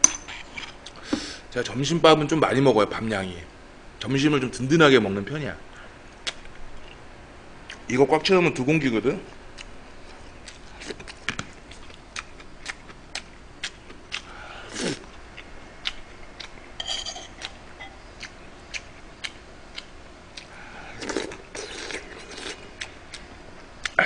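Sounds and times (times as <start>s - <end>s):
metal spoon clinking on pot: 16.8s - 18.0s.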